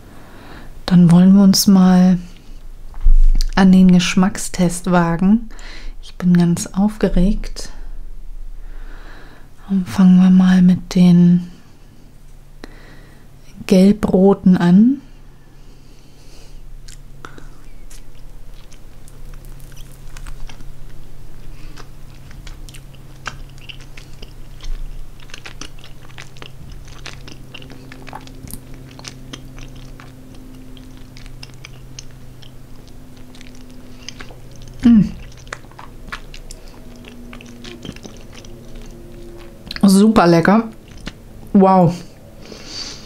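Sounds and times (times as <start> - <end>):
wet mouth clicks: 16.8 - 20.6, 21.7 - 39.8, 40.7 - 41.2
chewing gummy candy: 16.8 - 42.3.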